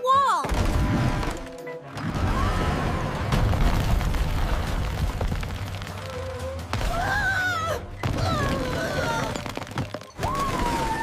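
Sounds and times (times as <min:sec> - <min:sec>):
rumble of wall breaking up: 0:02.0 - 0:05.9.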